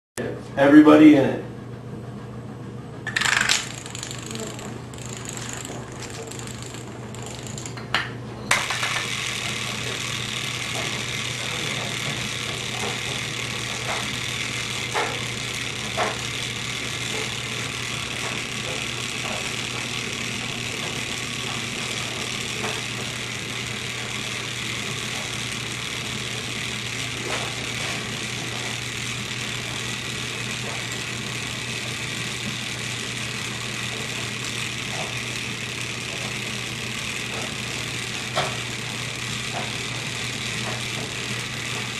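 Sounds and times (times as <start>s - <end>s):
dominoes set down clicking: 3.1s - 4.3s.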